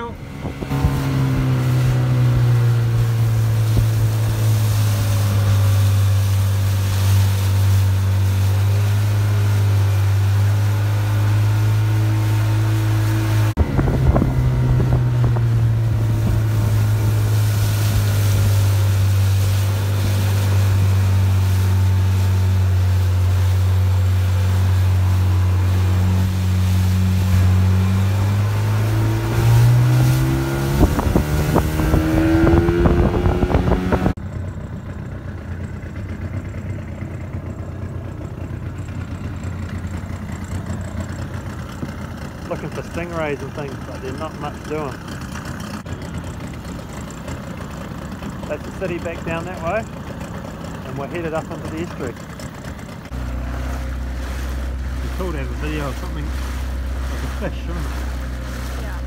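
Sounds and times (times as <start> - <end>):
motorboat engine running: 0.0 - 59.0.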